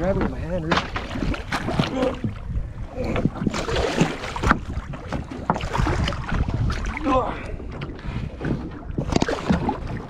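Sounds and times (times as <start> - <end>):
knocks and clatter: 0.0 - 1.4
wind buffeting microphone: 0.0 - 10.0.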